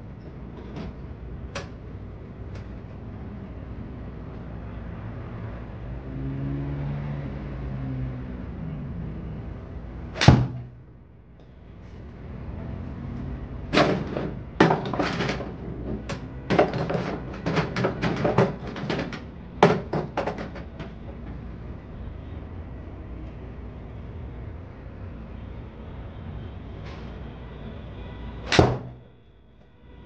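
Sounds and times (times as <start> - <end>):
golf club striking ball: 10.2 - 10.6.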